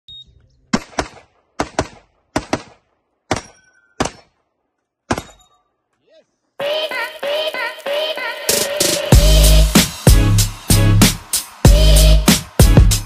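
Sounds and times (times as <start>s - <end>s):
music: 6.6s - 13.0s.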